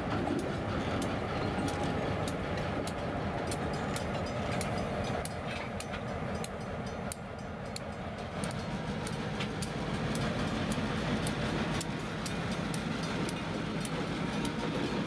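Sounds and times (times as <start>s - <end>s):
locomotive engines rumbling: 0.0s - 15.0s
sharp metallic clicks: 0.3s - 15.0s.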